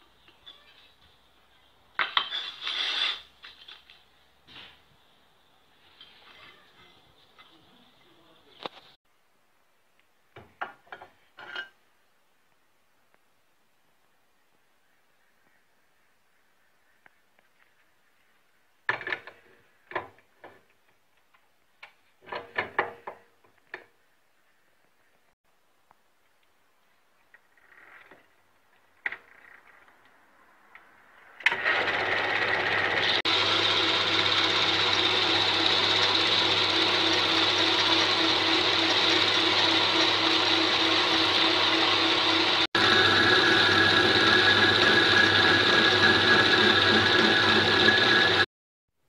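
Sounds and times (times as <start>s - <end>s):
lathe drilling metal whine: 31.5s - 48.5s.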